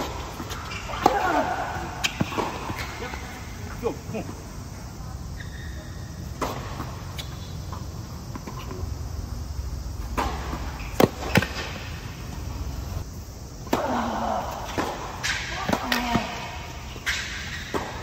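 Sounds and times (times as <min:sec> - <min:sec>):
tennis ball bouncing: 0:00.0 - 0:03.7, 0:06.2 - 0:13.0, 0:17.0 - 0:18.0
rackets striking tennis ball: 0:00.0 - 0:04.7, 0:06.0 - 0:18.0.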